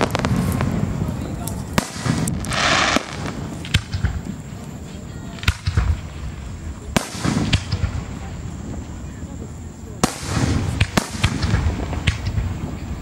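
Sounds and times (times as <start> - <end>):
fireworks bangs: 0.0 - 13.0
hissing crackle: 0.0 - 13.0.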